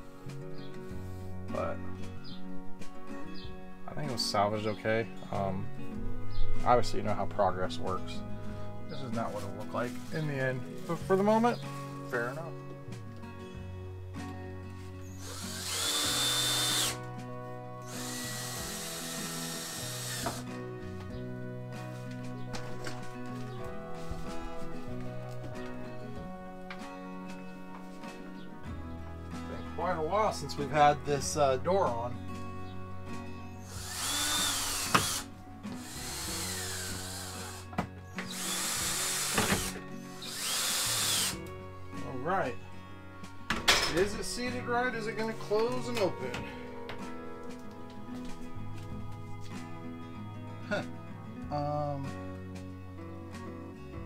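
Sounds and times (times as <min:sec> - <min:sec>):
background music: 0:00.0 - 0:54.0
cordless drill driving screws: 0:15.0 - 0:17.1, 0:17.8 - 0:20.5, 0:33.6 - 0:41.5.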